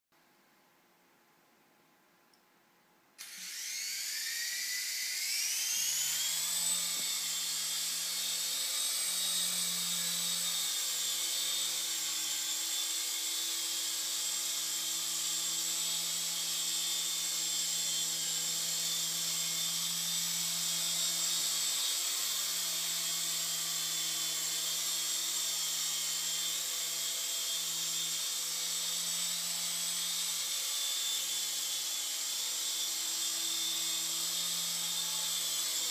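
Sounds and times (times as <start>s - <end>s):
electric motor whine: 3.2s - 35.9s.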